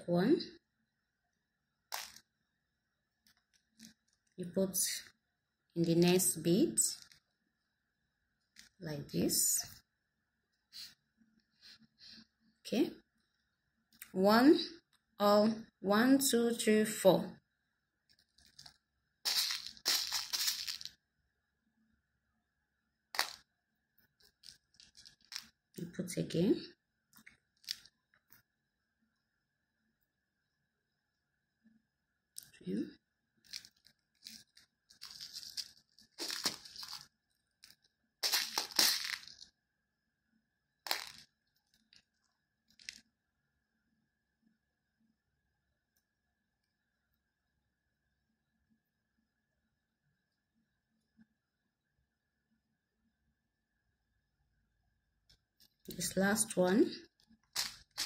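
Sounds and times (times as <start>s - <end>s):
fingers rustling through beads: 1.9s - 2.3s, 3.2s - 4.4s, 6.8s - 7.4s, 18.0s - 21.0s, 23.2s - 25.8s, 27.1s - 28.4s, 33.4s - 39.6s, 40.8s - 43.1s, 57.0s - 58.0s.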